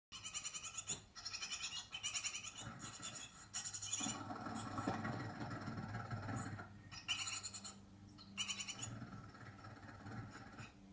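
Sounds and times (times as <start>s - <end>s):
nestlings' high chittering calls: 0.2s - 5.0s, 6.9s - 9.4s.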